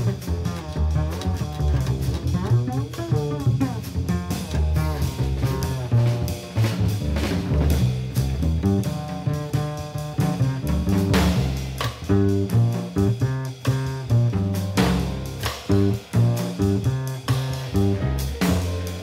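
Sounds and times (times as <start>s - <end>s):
double bass: 0.0s - 19.0s
drum kit playing: 0.0s - 19.0s.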